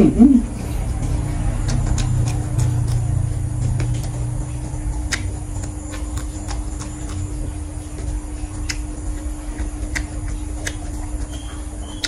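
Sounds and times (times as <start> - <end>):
low rumble: 0.0 - 11.6
faint steady hum: 0.0 - 12.0
close chewing: 0.4 - 12.0
soft mouth clicks: 0.6 - 3.2, 5.0 - 8.0, 8.6 - 12.0.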